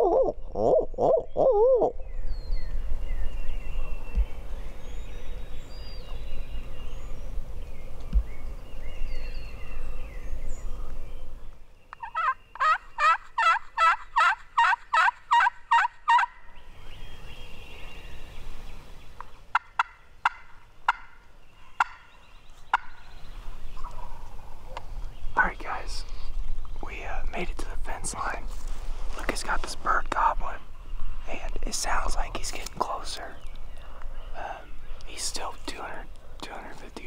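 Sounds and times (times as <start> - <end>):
turkey gobbling: 12.0 - 16.4, 19.5 - 21.2, 21.8 - 22.1, 22.7 - 23.0.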